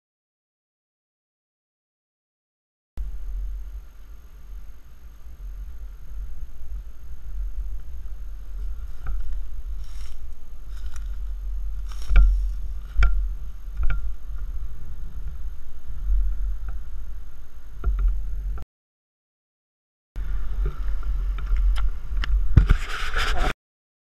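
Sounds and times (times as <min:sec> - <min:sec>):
wind rumble: 0:03.0 - 0:18.6, 0:20.2 - 0:23.5.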